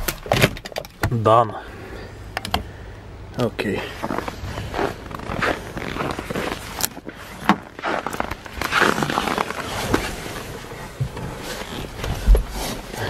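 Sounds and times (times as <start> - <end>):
footsteps in snow: 3.8 - 12.8
clothing rustling: 3.9 - 13.0.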